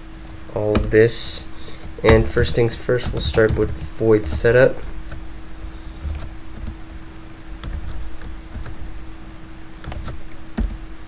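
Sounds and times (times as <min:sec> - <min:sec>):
faint steady hum: 0:00.0 - 0:11.0
computer keyboard keystrokes: 0:00.7 - 0:01.0, 0:02.1 - 0:05.2, 0:05.9 - 0:06.8, 0:07.6 - 0:08.9, 0:09.8 - 0:10.8.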